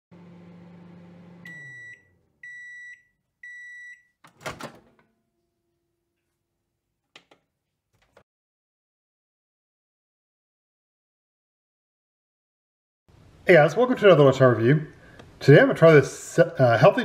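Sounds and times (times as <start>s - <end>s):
microwave oven humming: 0.1s - 2.7s
door latch clunk: 4.3s - 5.0s.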